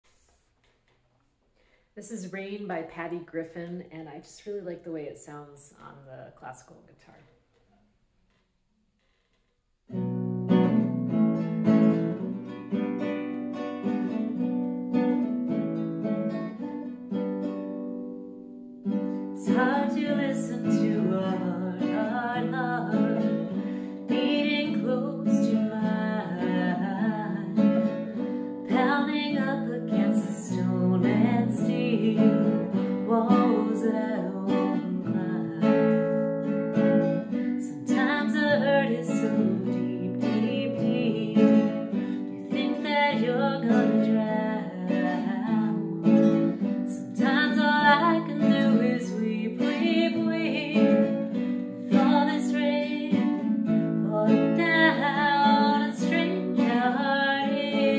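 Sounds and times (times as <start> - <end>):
classical guitar playing: 9.9 - 57.9
woman singing: 19.4 - 57.9.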